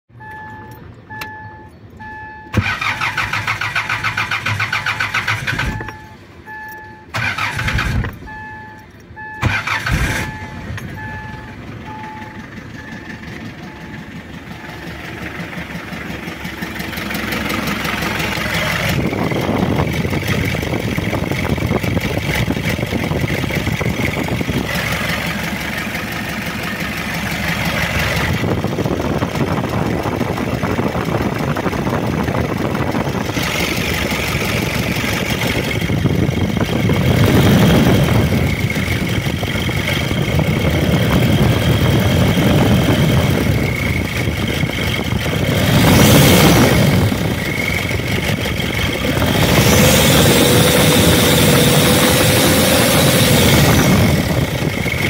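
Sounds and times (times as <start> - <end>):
diesel engine idling: 0.1 - 55.0
dashboard warning chime: 0.2 - 2.5, 5.7 - 7.1, 8.2 - 9.5, 10.2 - 15.0
starter motor cranking: 2.6 - 6.0.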